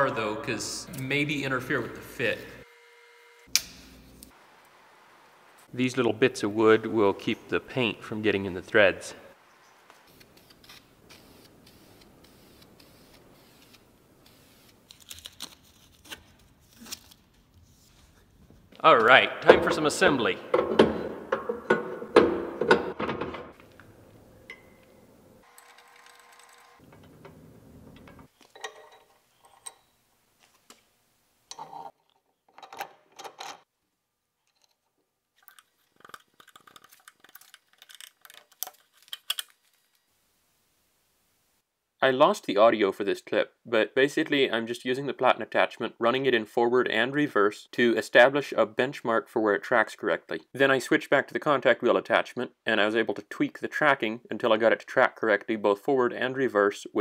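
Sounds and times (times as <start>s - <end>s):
metal bolts and tools clinking: 19.4s - 23.8s, 24.4s - 30.0s, 31.5s - 33.7s.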